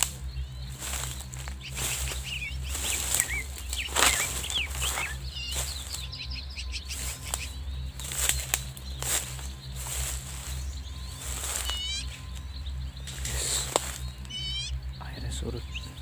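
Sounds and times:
footsteps in dry leaves: 0.0s - 14.6s
low rumble: 0.0s - 16.0s
small birds chirping: 0.0s - 16.0s.

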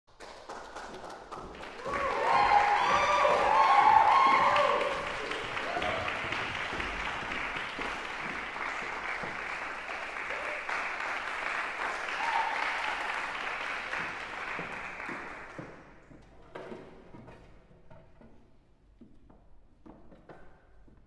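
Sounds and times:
audience applauding: 0.1s - 15.8s.

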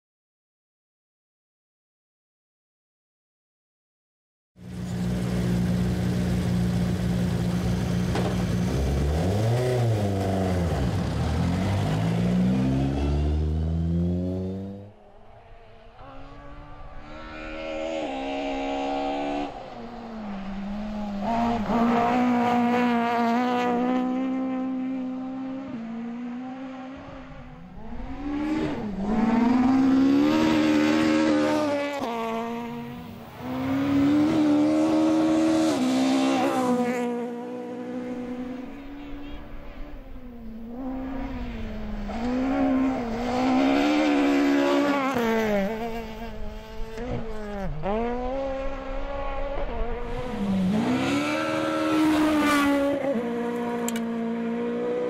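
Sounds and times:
rally car engine revving: 4.7s - 55.0s.

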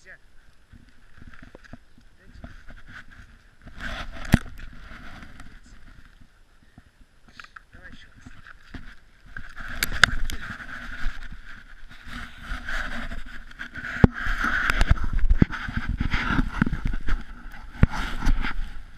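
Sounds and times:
camera handling noise: 3.7s - 5.5s, 8.4s - 11.3s.

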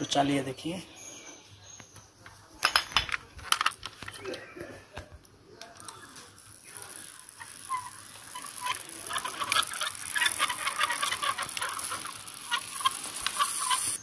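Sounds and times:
toy car rattling on concrete: 2.5s - 14.0s.

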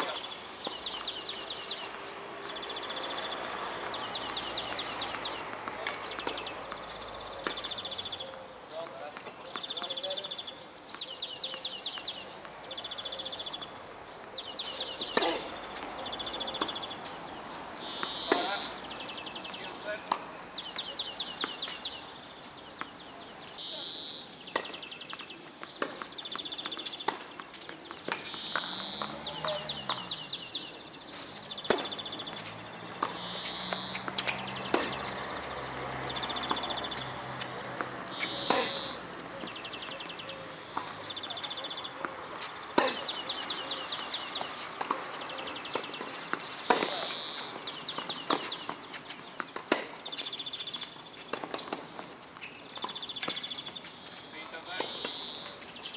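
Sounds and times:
small birds trilling: 0.0s - 55.9s
tennis racket hitting ball: 15.0s - 18.8s, 31.3s - 50.3s.

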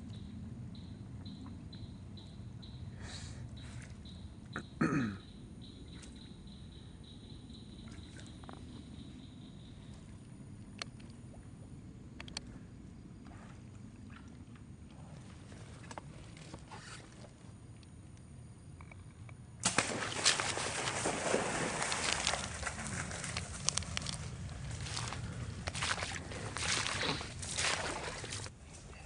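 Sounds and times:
low steady rumble: 21.0s - 29.0s.

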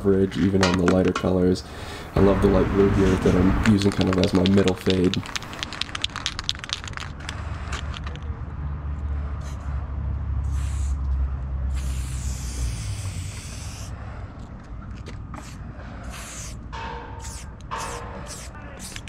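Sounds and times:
spray paint can hissing: 3.0s - 8.0s, 10.4s - 11.1s, 11.7s - 13.9s, 15.4s - 16.6s, 17.2s - 19.0s.

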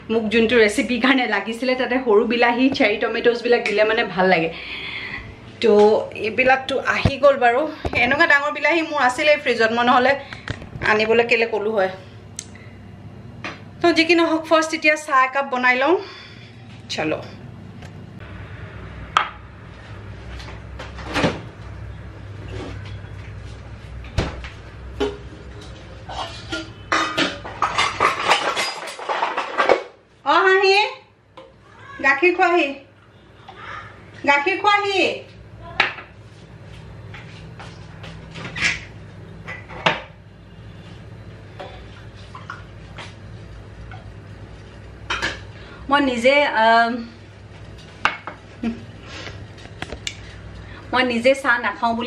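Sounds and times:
kitchen items knocking and clinking: 26.1s - 30.0s
kitchen knocks and clunks: 39.5s - 40.2s.

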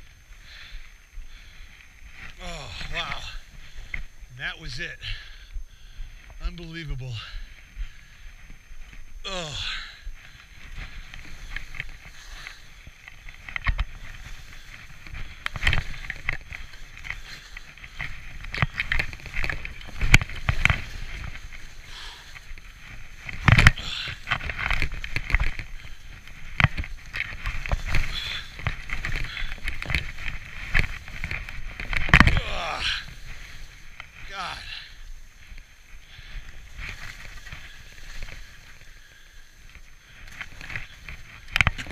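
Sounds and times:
wind rumbling on microphone: 0.0s - 41.9s
skis swishing through powder snow: 10.2s - 41.9s.

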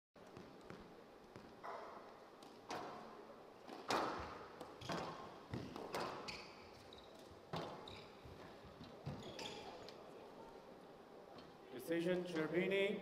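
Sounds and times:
shoes squeaking on court floor: 3.6s - 10.1s.

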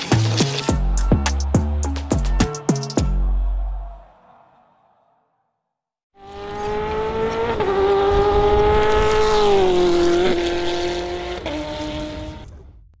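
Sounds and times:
race car engine at high revs: 6.2s - 12.4s.

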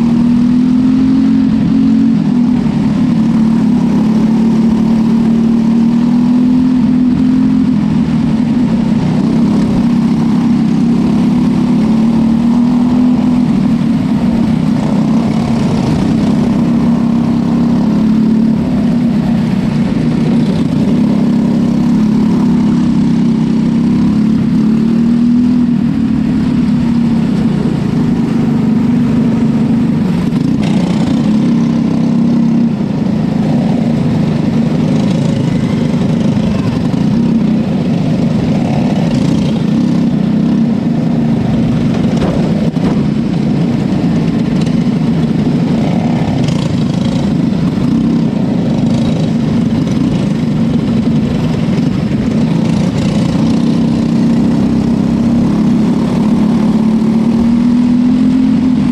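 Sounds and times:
racing car engine running: 0.0s - 58.9s.

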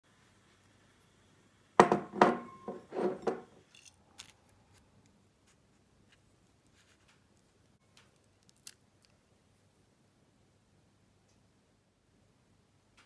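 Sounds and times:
ceramic bowls clattering on table: 1.8s - 3.5s.

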